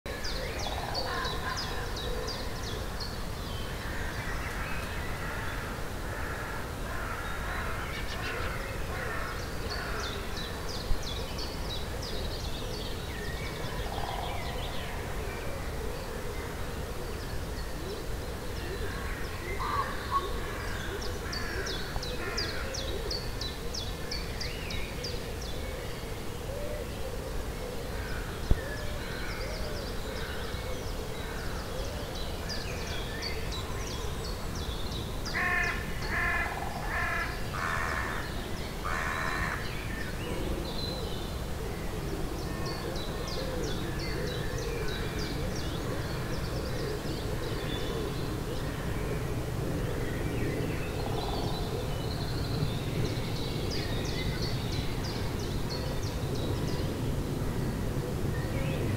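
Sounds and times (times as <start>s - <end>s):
songbirds singing and trilling: 0.1s - 58.9s
crow cawing: 35.4s - 38.2s.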